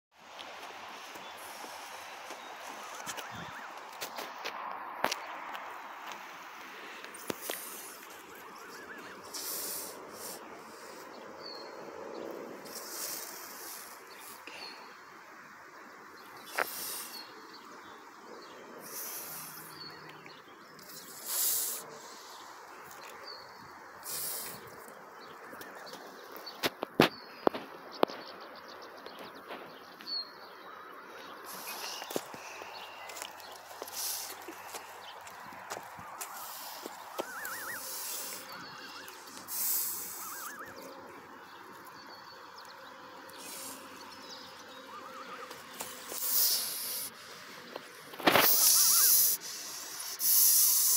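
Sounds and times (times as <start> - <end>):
goose hissing: 6.9 - 11.1, 12.6 - 14.8, 16.5 - 17.3, 18.8 - 19.8, 20.9 - 22.5, 24.0 - 24.8, 31.4 - 32.6, 33.8 - 34.7, 36.2 - 41.0, 43.4 - 44.0, 44.9 - 47.2, 48.2 - 50.9
goslings peeping: 31.4 - 42.0, 44.5 - 47.1, 47.8 - 50.9.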